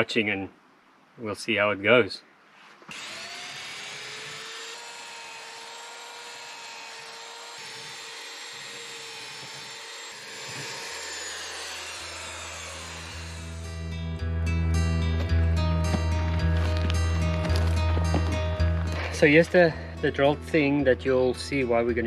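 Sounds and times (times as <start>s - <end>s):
power drill boring through wood: 2.9s - 13.8s.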